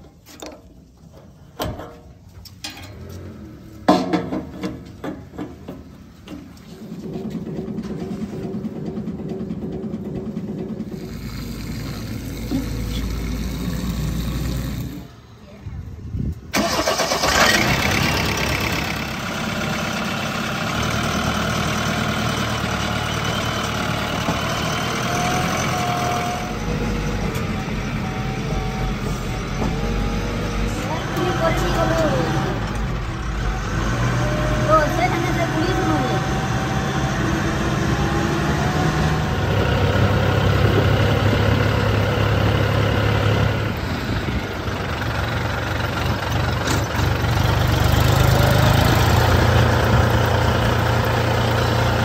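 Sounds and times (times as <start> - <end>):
diesel engine starting and running: 0.0 - 52.0
metallic clanks of fuel cap: 1.6 - 3.0.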